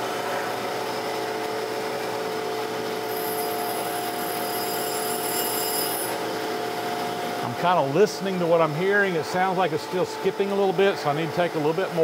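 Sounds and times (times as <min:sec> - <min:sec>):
grinder motor hum: 0:02.9 - 0:06.4
grinding hiss: 0:03.1 - 0:06.2.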